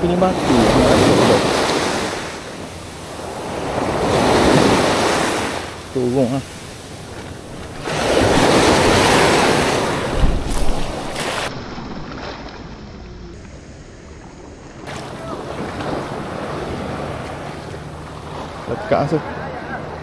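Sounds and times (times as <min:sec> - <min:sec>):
wind buffeting microphone: 0:00.0 - 0:13.1
rushing water: 0:00.0 - 0:20.0.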